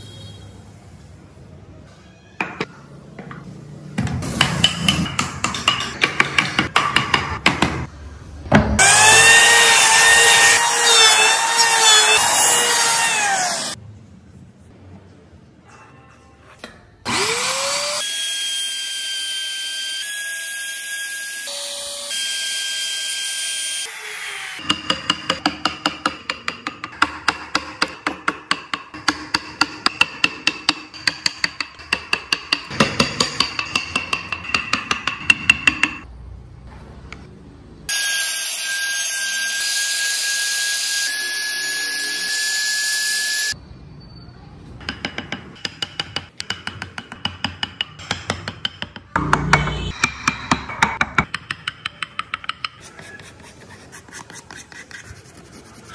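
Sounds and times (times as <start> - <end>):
router whining cutting wood: 8.8 - 13.8, 17.1 - 20.7
chisel tapping into wood: 50.8 - 52.8.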